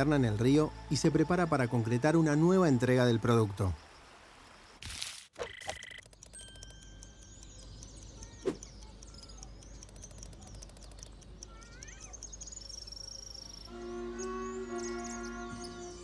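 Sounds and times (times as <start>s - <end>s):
small birds chirping: 6.0s - 16.0s.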